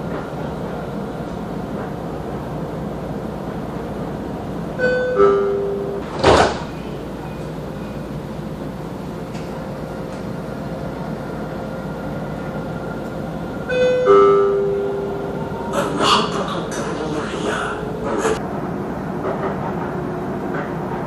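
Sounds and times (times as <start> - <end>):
tram running noise: 0.0 - 21.0.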